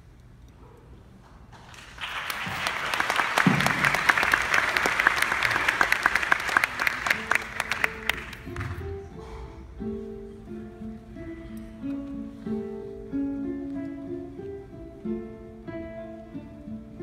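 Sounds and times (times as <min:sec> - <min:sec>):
audience applauding: 0:01.6 - 0:08.8.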